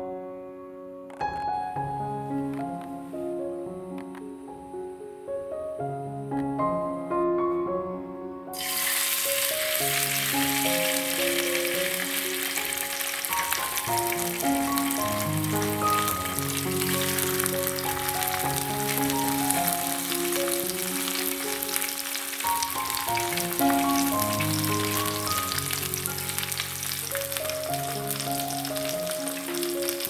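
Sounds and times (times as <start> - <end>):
background music: 0.0 - 30.0
fish sizzling in frying pan: 8.6 - 30.0.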